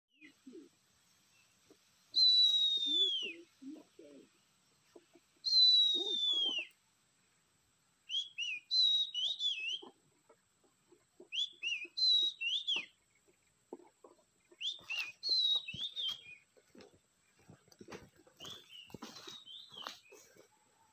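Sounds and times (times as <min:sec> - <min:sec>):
bird whistled song: 0:02.1 - 0:03.5, 0:05.4 - 0:06.8, 0:08.1 - 0:10.0, 0:11.3 - 0:13.0, 0:14.5 - 0:16.5, 0:18.4 - 0:20.2.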